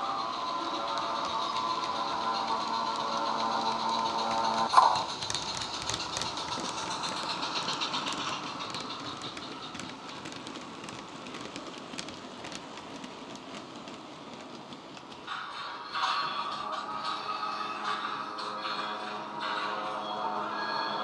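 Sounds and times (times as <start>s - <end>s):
model train running: 0.0s - 21.0s
rapid clicking: 0.1s - 15.3s.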